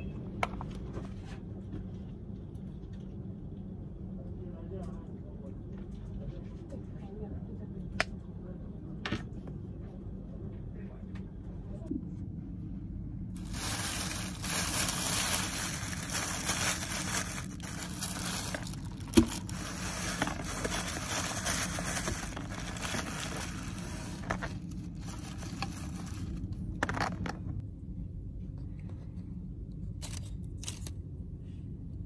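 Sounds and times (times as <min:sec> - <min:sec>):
steady low hum: 0:00.0 - 0:32.0
plastic bag rustling: 0:13.3 - 0:27.4.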